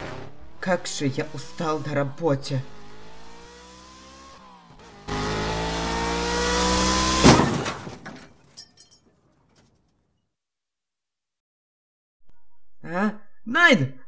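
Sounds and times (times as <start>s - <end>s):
car engine revving: 0.0s - 7.5s
loud car crash: 6.8s - 8.6s
debris clattering: 7.2s - 10.0s.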